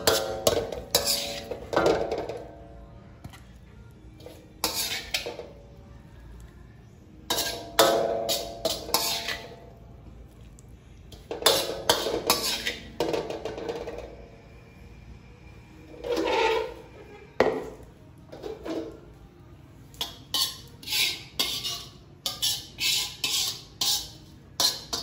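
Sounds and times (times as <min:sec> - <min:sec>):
metal spatula scraping a wok: 0:00.0 - 0:02.5, 0:04.2 - 0:05.6, 0:07.2 - 0:09.8, 0:11.1 - 0:14.2, 0:15.8 - 0:19.2, 0:20.0 - 0:25.0.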